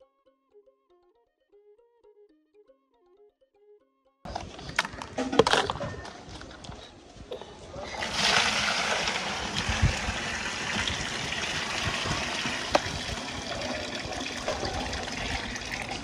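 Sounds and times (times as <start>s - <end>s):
water pouring into plastic bucket: 7.7s - 16.0s.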